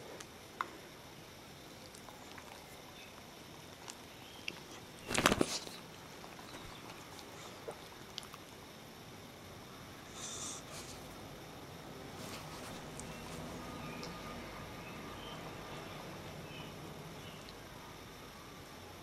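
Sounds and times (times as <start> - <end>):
dog snorting through nose: 10.1 - 11.2.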